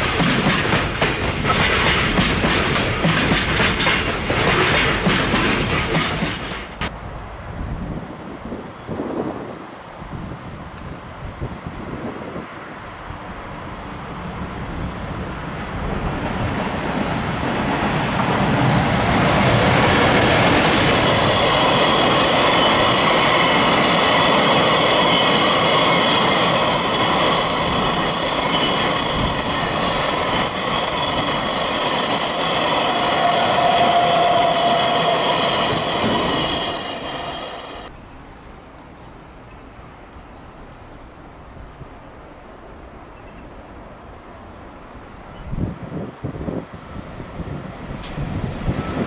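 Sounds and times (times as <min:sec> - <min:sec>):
freight train passing: 0:00.0 - 0:09.5, 0:10.8 - 0:38.0, 0:41.9 - 0:49.0
wheel squeal: 0:21.1 - 0:37.9.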